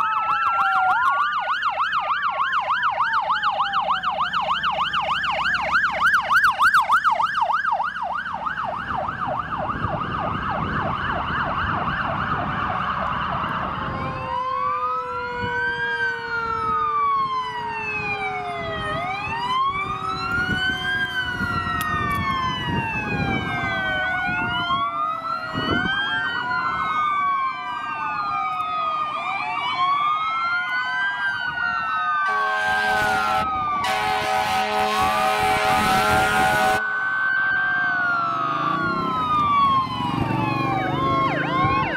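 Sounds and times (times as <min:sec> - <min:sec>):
fire truck sirens wailing: 0:00.0 - 0:41.9
police siren yelping: 0:00.0 - 0:41.9
horn blasts: 0:32.2 - 0:36.8.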